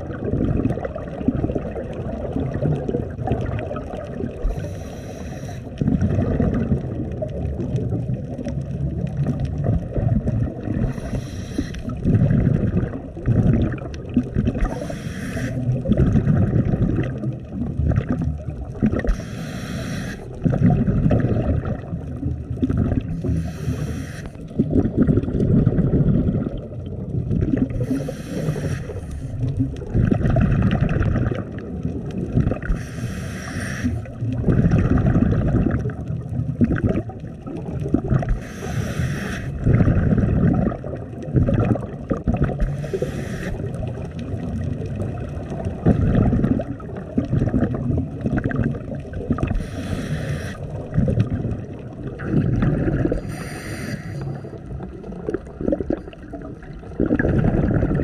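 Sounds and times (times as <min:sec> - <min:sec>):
exhaled bubbles rumbling: 0:00.0 - 0:58.0
regulator inhale hiss: 0:04.4 - 0:05.8, 0:10.8 - 0:12.0, 0:14.6 - 0:15.7, 0:19.0 - 0:20.4, 0:23.2 - 0:24.4, 0:27.8 - 0:29.5, 0:32.6 - 0:34.1, 0:38.3 - 0:39.6, 0:42.6 - 0:43.9, 0:49.5 - 0:50.8, 0:53.1 - 0:54.6.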